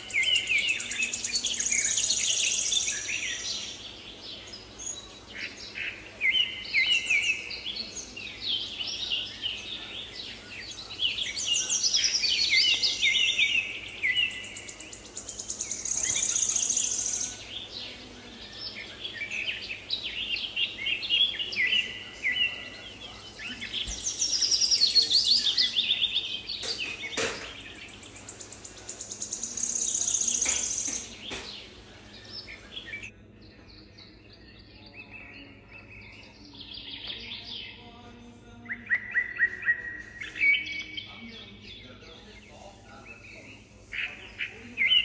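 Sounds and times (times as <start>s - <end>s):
songbirds chirping and trilling: 0.0s - 45.0s.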